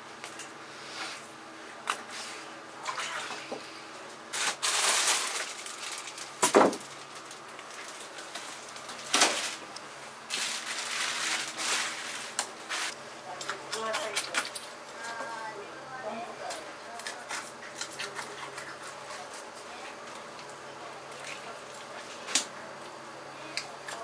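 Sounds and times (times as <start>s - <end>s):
plastic bag rustling: 4.3s - 13.0s.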